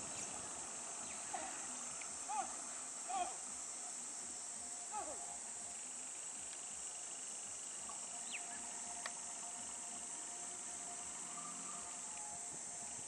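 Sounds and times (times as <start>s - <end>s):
bird calls: 0.0s - 5.4s, 7.8s - 10.1s
insect drone: 0.0s - 13.0s.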